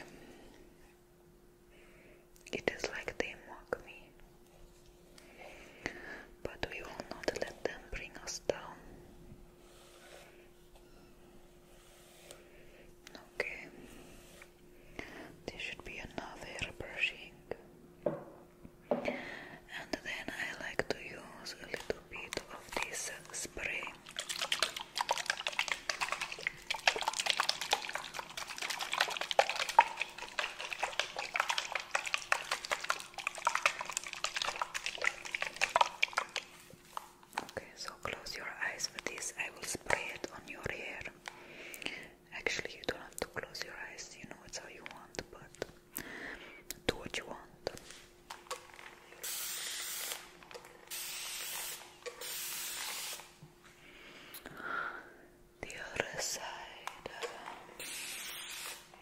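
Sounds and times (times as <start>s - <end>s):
wet shampoo squelches: 21.8s - 37.9s
spray bottle hissing: 49.2s - 50.3s, 50.9s - 53.3s, 57.8s - 58.9s.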